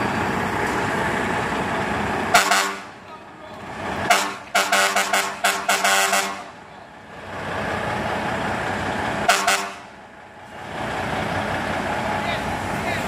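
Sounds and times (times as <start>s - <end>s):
diesel truck engine running: 0.0s - 13.0s
truck horn toots: 2.3s - 3.0s, 4.0s - 6.6s, 9.2s - 10.0s.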